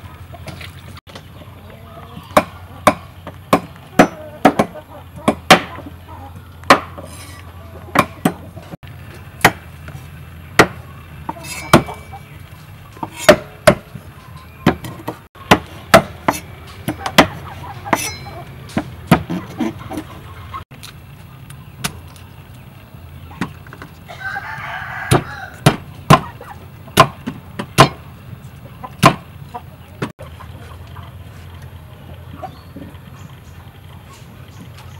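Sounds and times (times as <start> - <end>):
cleavers chopping on wooden blocks: 2.2 - 5.9, 6.6 - 7.1, 7.9 - 8.5, 9.4 - 9.7, 10.6 - 10.8, 13.0 - 14.0, 14.6 - 18.1, 18.7 - 20.0, 25.1 - 28.0, 29.0 - 29.3
rooster crowing: 24.1 - 25.7.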